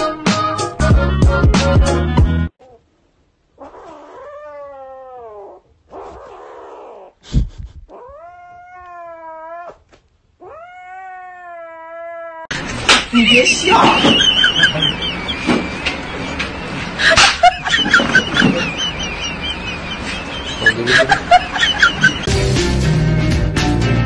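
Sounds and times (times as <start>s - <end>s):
kitten yowling: 3.6s - 7.1s, 7.9s - 9.8s, 10.4s - 12.5s.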